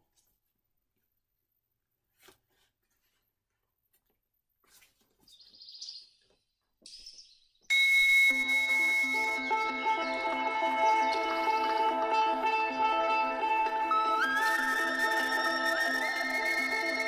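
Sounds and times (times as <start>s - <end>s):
music with high steady tones: 7.7s - 17.0s.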